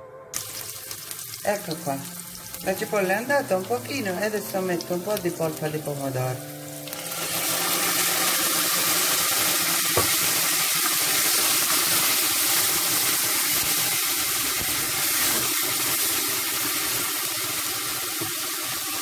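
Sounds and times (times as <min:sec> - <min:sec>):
food sizzling in oil: 0:00.4 - 0:19.0.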